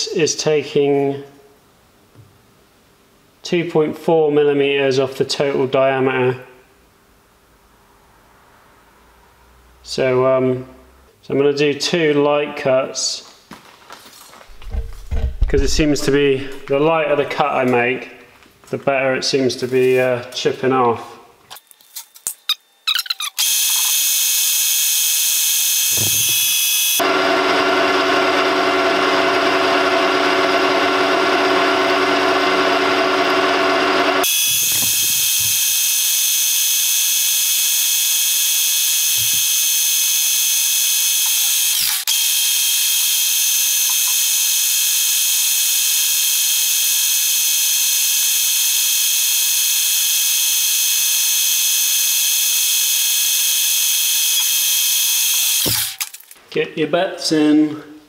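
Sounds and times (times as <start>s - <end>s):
lathe tool cutting metal: 23.4s - 56.0s
metal lathe whining: 23.4s - 56.0s.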